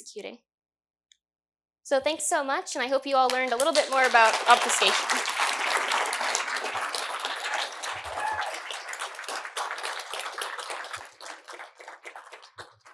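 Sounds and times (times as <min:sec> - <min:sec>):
audience applauding: 0:03.3 - 0:12.9.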